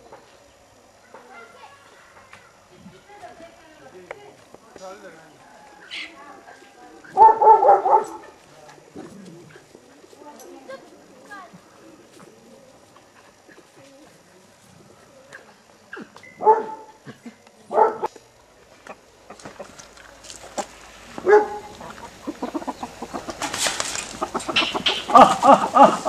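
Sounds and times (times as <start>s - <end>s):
chickens calling: 5.3s - 10.2s, 18.7s - 26.0s
rustling: 19.3s - 26.0s.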